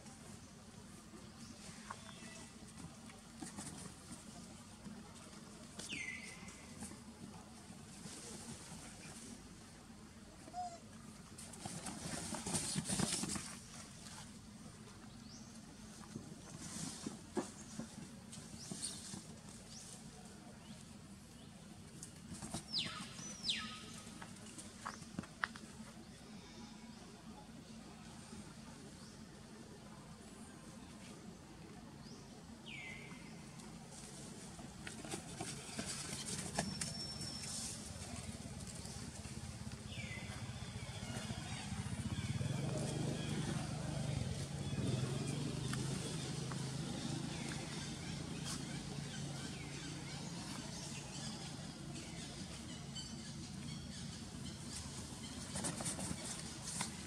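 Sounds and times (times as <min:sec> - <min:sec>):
monkeys scrambling on tarpaulin: 0:11.4 - 0:14.3, 0:34.0 - 0:39.6, 0:54.8 - 0:57.0.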